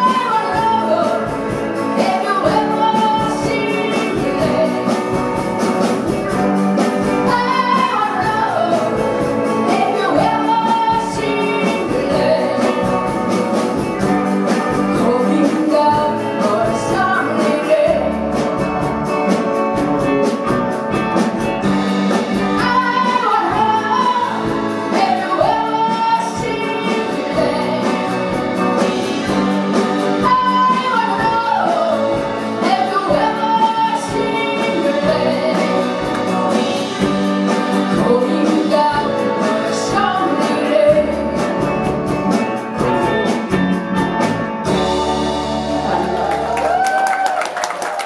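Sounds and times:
woman singing: 0.0s - 5.5s, 6.8s - 13.4s, 14.5s - 18.7s, 22.4s - 41.8s
live rock band playing: 0.0s - 48.0s.

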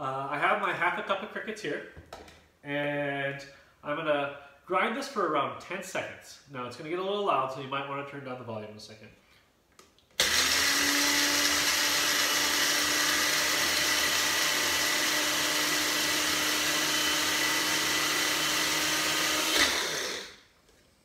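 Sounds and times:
electric grinder running: 10.2s - 20.4s.

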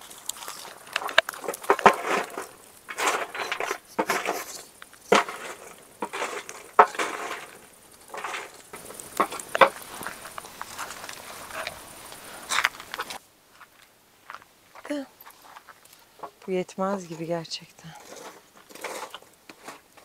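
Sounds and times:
scraping rustles: 0.0s - 13.2s, 15.1s - 20.0s
dishes and utensils clattering: 1.0s - 8.6s.

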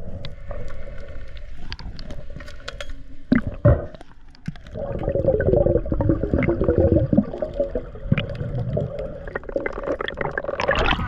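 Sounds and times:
muffled underwater water movement: 0.0s - 11.0s
small crackling clicks: 0.1s - 4.8s, 7.1s - 10.8s.

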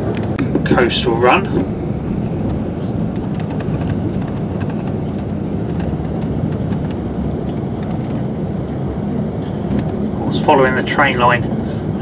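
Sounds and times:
coach engine and road noise: 0.0s - 12.0s
light ticks and rattles: 1.6s - 8.3s.

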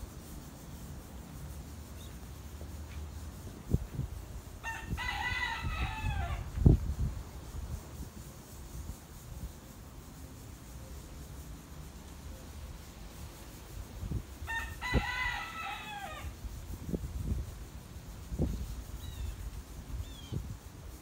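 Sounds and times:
rooster crowing: 4.6s - 6.5s, 14.4s - 16.4s.

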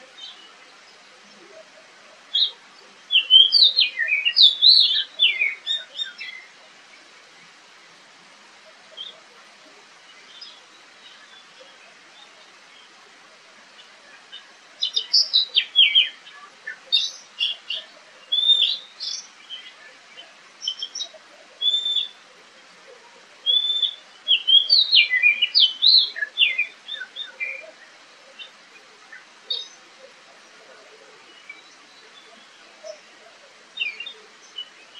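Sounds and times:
bird singing whistled notes: 2.4s - 6.5s, 14.8s - 19.7s, 20.6s - 22.2s, 23.4s - 27.7s.

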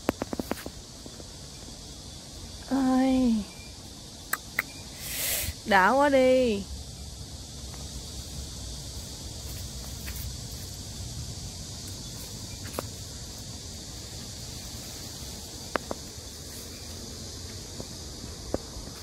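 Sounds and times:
cicada chorus drone: 0.0s - 19.0s
sharp clicks: 4.2s - 4.8s.

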